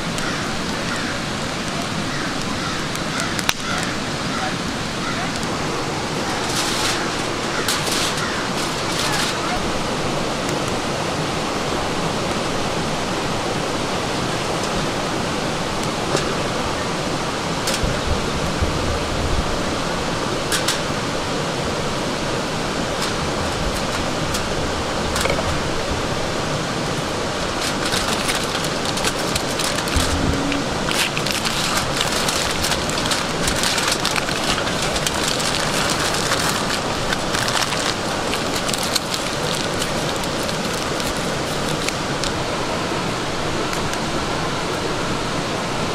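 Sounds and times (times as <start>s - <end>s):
aluminium foil crinkling: 0.0s - 4.0s, 5.0s - 9.8s, 20.5s - 20.9s, 22.8s - 25.8s, 26.7s - 42.4s
running water: 0.0s - 45.9s.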